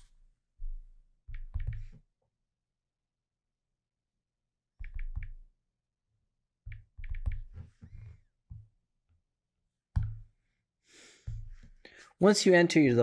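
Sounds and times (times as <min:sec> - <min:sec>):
fingertips tapping touchscreen: 0:06.7 - 0:08.2.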